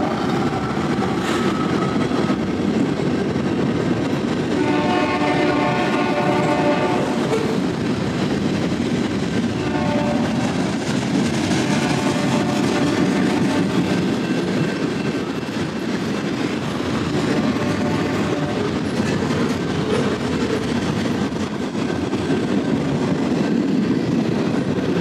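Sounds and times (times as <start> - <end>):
freight train rumbling on rails: 0.0 - 25.0
train air horn chord: 4.6 - 7.1.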